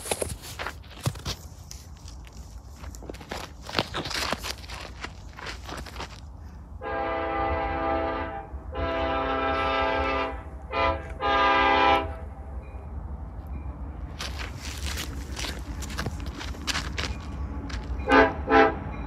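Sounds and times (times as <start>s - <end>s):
locomotive air horn blasts: 6.8s - 12.3s, 18.0s - 19.0s.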